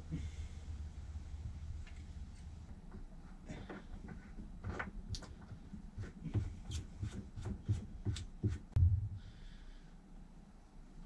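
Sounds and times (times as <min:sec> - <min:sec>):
heavy thump: 0:08.8 - 0:09.4.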